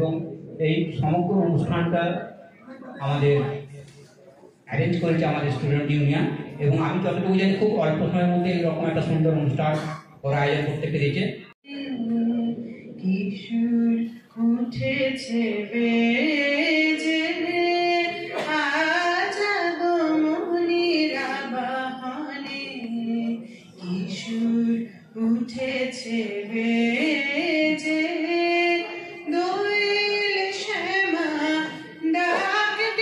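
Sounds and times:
woman singing into a microphone: 11.6s - 33.0s.

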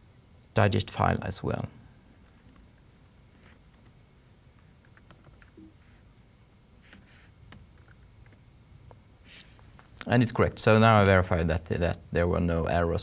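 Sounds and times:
faint keystrokes on keyboard: 2.2s - 5.8s, 6.9s - 8.4s.

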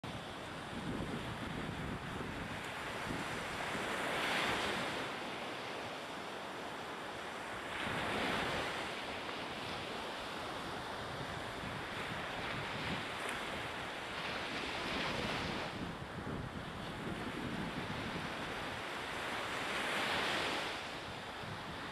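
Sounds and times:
coastal wind: 0.0s - 21.9s
wind buffeting microphone: 0.1s - 5.0s, 10.5s - 21.9s
sea surf: 0.1s - 21.9s.

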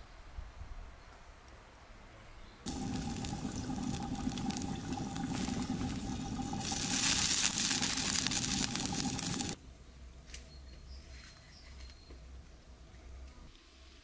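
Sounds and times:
pot steaming with steady hiss: 2.6s - 9.6s
wood fire crackling and popping: 2.7s - 9.6s.

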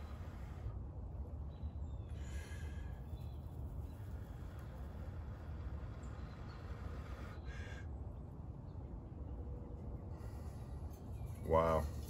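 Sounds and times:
breath blowing puffs: 0.0s - 0.8s.

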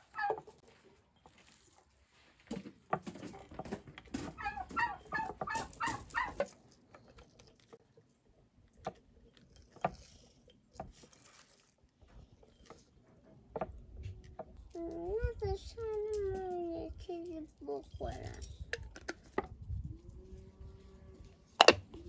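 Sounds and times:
chicken clucking: 0.0s - 0.6s, 3.2s - 6.5s.

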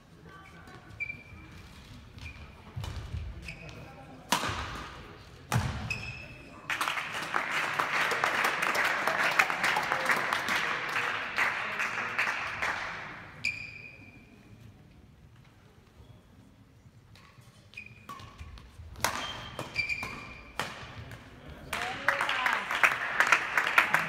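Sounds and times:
spectators applauding: 6.7s - 13.0s, 21.7s - 24.0s.

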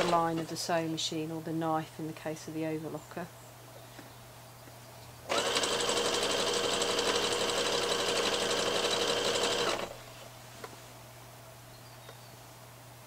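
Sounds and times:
sewing machine running: 0.0s - 0.3s, 5.3s - 10.0s.

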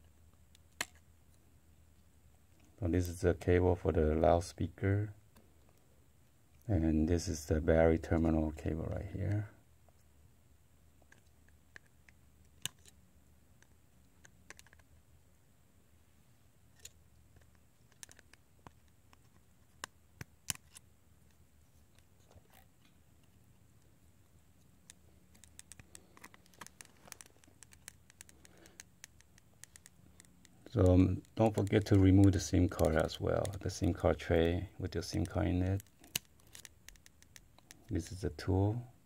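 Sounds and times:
plastic tool clicking: 35.1s - 37.9s.

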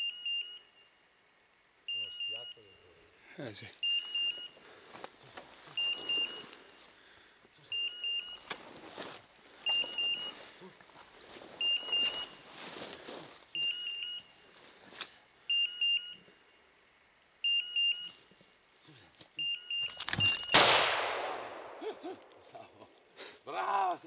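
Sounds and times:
high electronic beeps: 1.9s - 2.9s, 3.8s - 4.5s, 5.8s - 6.5s, 7.7s - 8.5s, 9.7s - 10.4s, 11.6s - 12.4s, 13.6s - 14.3s, 19.4s - 20.6s
steps rustling through grass: 4.0s - 7.0s, 8.3s - 13.7s, 14.3s - 15.2s.

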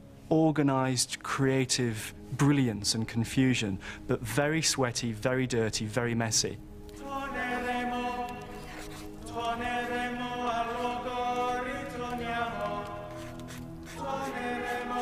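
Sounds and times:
voices chanting long notes: 7.0s - 15.0s.

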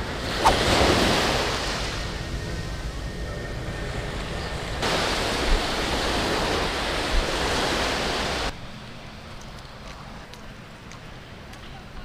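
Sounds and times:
surf washing in: 0.0s - 8.5s.

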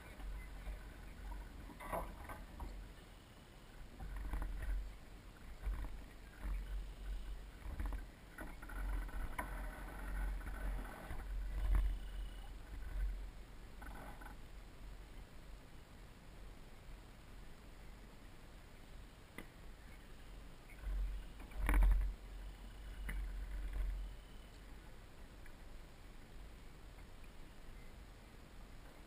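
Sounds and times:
water lapping against hull: 0.0s - 14.4s
steady low rumble: 0.0s - 29.0s.

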